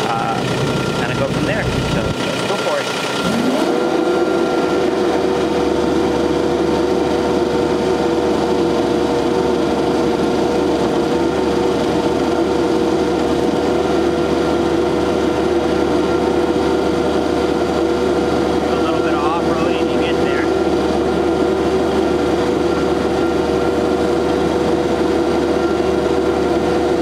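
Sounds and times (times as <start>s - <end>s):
loader engine revving: 0.0s - 6.9s.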